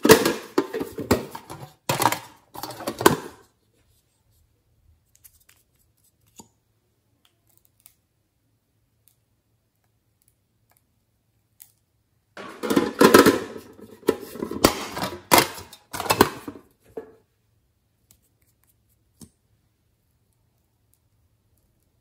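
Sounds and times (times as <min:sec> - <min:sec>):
lipstick case scraping and rattling: 0:12.4 - 0:16.6.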